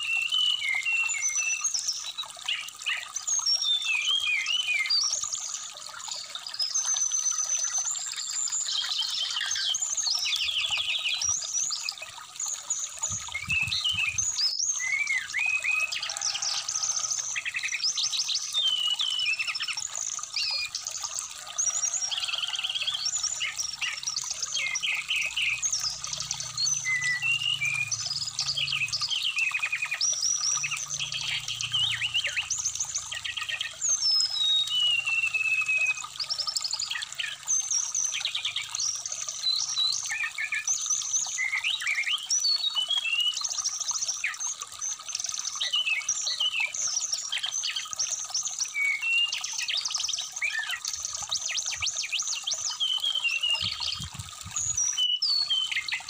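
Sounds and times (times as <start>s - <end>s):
bird singing chirps and whistles: 0.0s - 5.2s, 13.0s - 15.9s, 17.4s - 20.8s, 23.4s - 40.7s, 41.3s - 43.5s, 48.7s - 56.0s
flowing stream: 0.0s - 56.0s.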